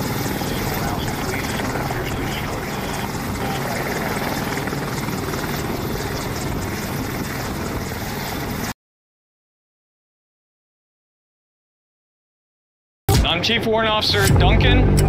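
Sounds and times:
helicopter rotor and engine noise: 0.0s - 8.8s.

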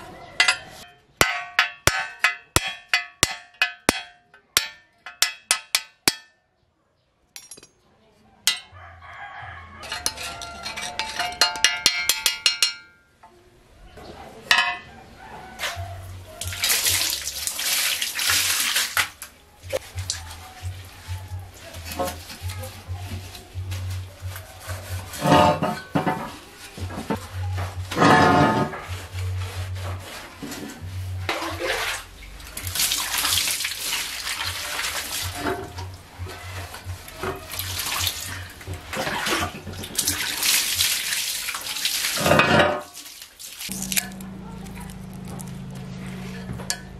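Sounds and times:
water splashing on tiled floor: 15.6s - 27.1s, 27.8s - 46.8s
sponge scrubbing bicycle frame: 16.4s - 19.0s, 19.7s - 46.9s.

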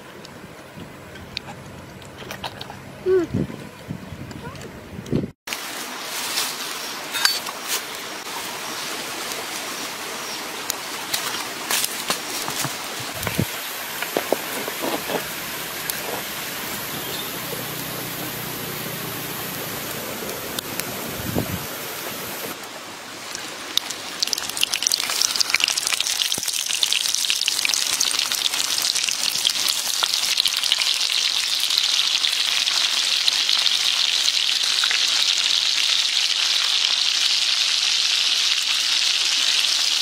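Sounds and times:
oil sizzling in a wok: 23.2s - 40.0s.

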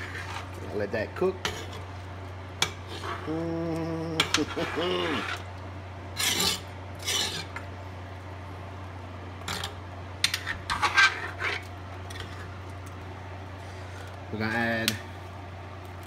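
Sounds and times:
metal tongs scraping a pot: 0.0s - 0.6s, 1.4s - 1.9s, 6.2s - 7.7s, 9.5s - 12.5s.

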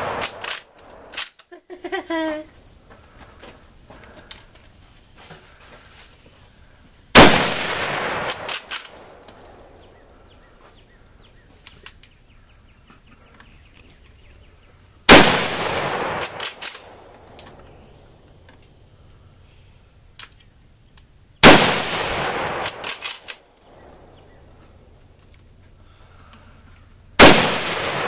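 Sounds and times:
gunshots with echo: 0.0s - 1.1s, 7.2s - 9.2s, 15.1s - 17.1s, 21.4s - 23.2s, 27.2s - 28.0s.

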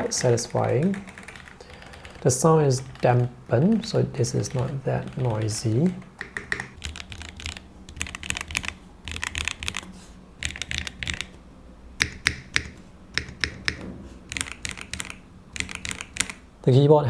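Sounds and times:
keyboard keystrokes: 0.2s - 2.2s, 4.5s - 11.4s, 12.0s - 16.4s.

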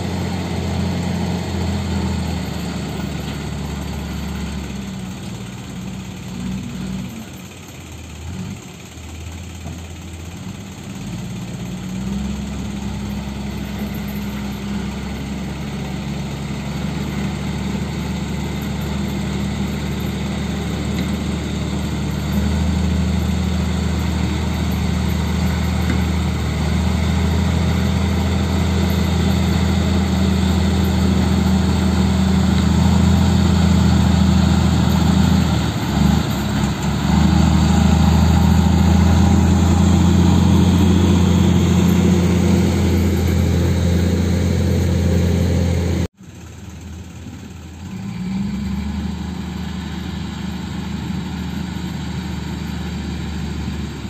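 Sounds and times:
heavy diesel engines running: 0.0s - 54.0s
deeper engine note: 12.3s - 46.1s.

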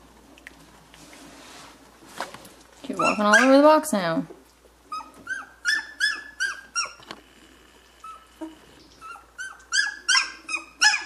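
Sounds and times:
puppies squeaking and whining: 2.9s - 3.8s, 4.8s - 7.2s, 7.9s - 11.0s.

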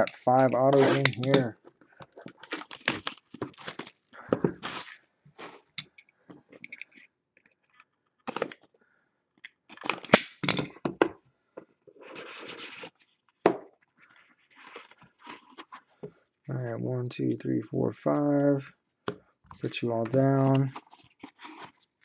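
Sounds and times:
plastic wrap crackling and tearing: 2.0s - 5.6s.

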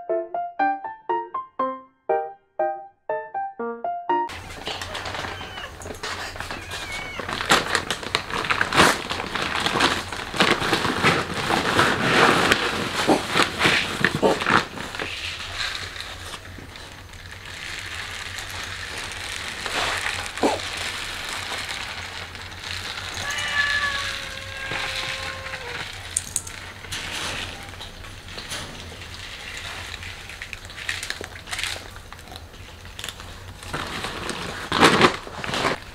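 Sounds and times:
plastic bag rustling: 4.3s - 35.9s
cats meowing: 4.4s - 7.9s, 22.7s - 28.0s.

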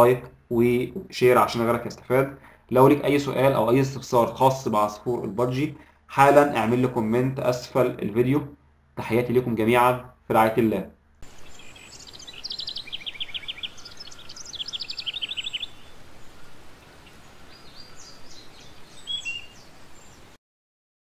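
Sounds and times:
small birds chirping: 0.0s - 20.4s
steady hiss: 11.2s - 20.4s.

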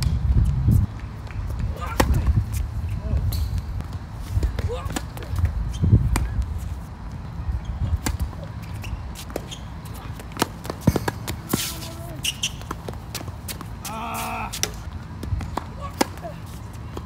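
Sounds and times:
tennis ball bouncing on hard court: 7.9s - 13.8s
tennis ball struck by racket: 8.0s - 8.4s.

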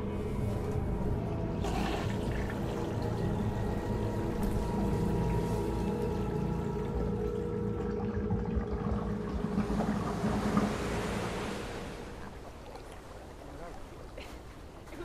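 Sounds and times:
steady hum: 0.0s - 12.5s
toilet flushing: 1.4s - 12.2s.

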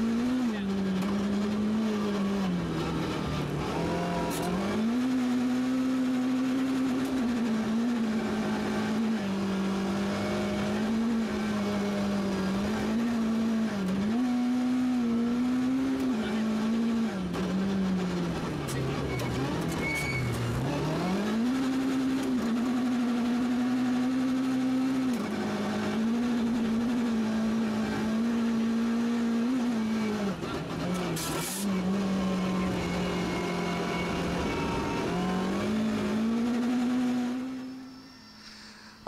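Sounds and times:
rally car engine at high revs: 0.0s - 38.0s.

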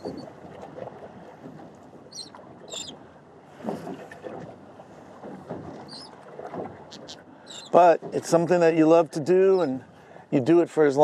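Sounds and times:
wind on microphone: 0.0s - 1.7s
wind and water noise: 0.0s - 11.0s.

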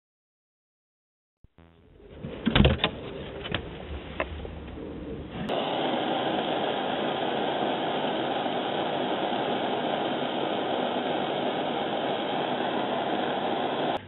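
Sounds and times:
gas torch hissing: 3.0s - 14.0s.

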